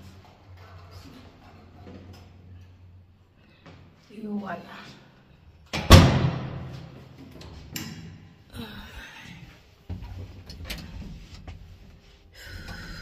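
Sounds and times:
door banging shut: 0:05.8 - 0:06.7.

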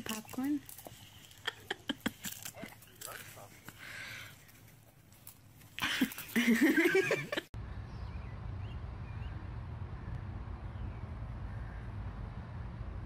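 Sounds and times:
steady low rumble: 0:07.6 - 0:13.0.

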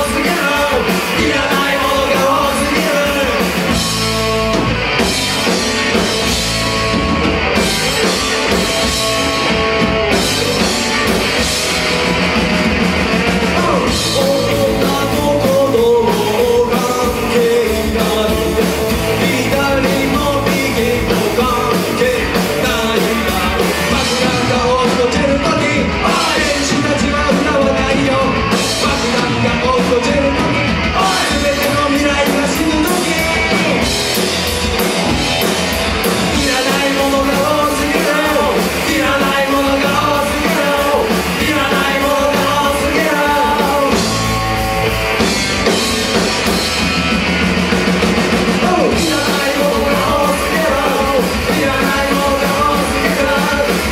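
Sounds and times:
male singer: 0:00.0 - 0:03.7, 0:13.4 - 0:34.0, 0:36.2 - 0:44.3, 0:48.4 - 0:53.9
punk rock band playing: 0:00.0 - 0:53.9.

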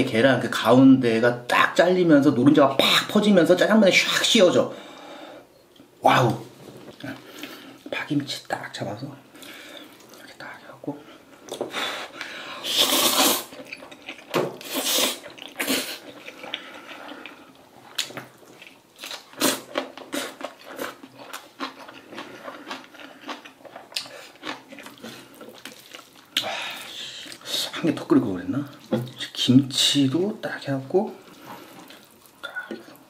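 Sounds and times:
person slurping noodles: 0:12.6 - 0:13.6, 0:14.6 - 0:17.0
wet chewing smacks: 0:31.3 - 0:33.0.

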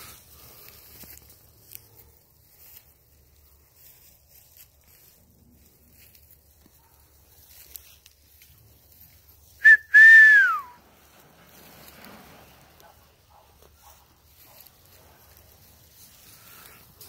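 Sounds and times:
person whistling: 0:09.6 - 0:10.8.

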